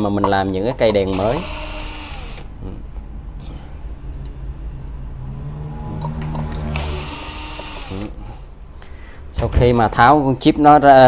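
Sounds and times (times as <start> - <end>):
cordless drill whining: 1.1 - 2.5, 6.7 - 8.2.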